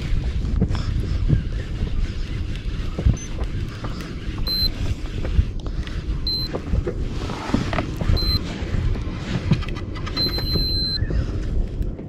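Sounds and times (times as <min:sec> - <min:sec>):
wind rumbling on microphone: 0:00.0 - 0:12.0
high steady beep: 0:04.4 - 0:04.8, 0:06.2 - 0:06.6, 0:08.2 - 0:08.5, 0:10.2 - 0:11.0
knocks and clicks: 0:09.4 - 0:11.0.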